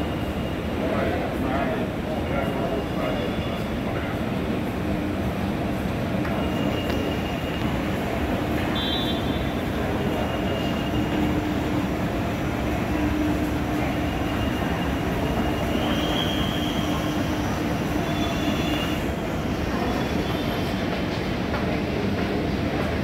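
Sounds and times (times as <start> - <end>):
moving walkway rumbling: 9.5 - 23.0.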